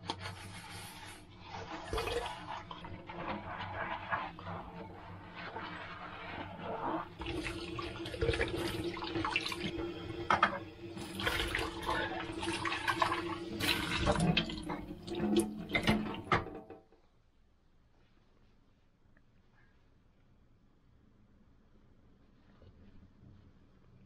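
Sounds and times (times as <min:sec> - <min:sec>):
tap running into a metal sink: 0:13.6 - 0:16.8.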